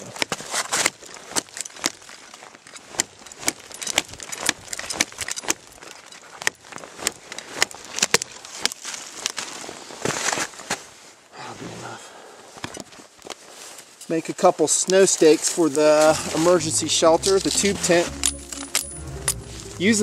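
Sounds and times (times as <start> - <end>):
twigs snapping: 0.2 - 9.5
branches crackling: 0.7 - 10.6, 12.9 - 20.0.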